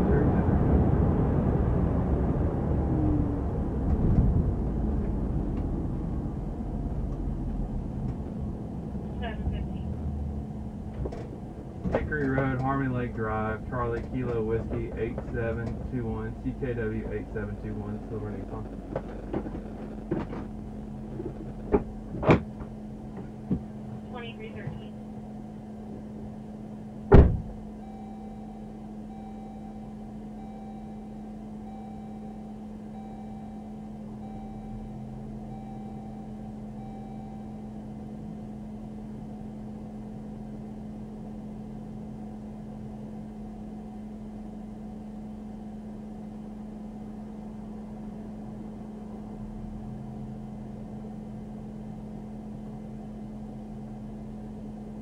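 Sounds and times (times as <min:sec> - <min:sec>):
car interior idling hum: 0:00.0 - 0:55.0
car door shutting: 0:18.6 - 0:23.7, 0:27.0 - 0:27.7
soft electronic chime: 0:27.8 - 0:37.8.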